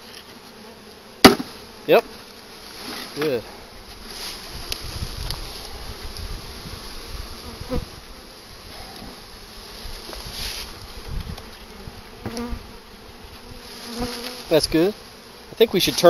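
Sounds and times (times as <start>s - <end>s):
honey bees buzzing: 0.0s - 16.0s
sharp knock on wooden box: 1.2s - 1.6s.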